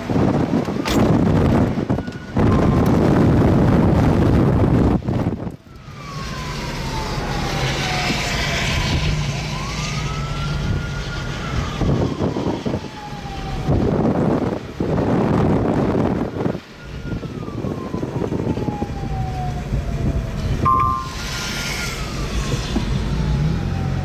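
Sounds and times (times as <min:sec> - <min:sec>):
wind buffeting microphone: 0:00.0 - 0:24.0
siren wailing: 0:00.1 - 0:04.9, 0:05.6 - 0:14.6, 0:15.6 - 0:24.0.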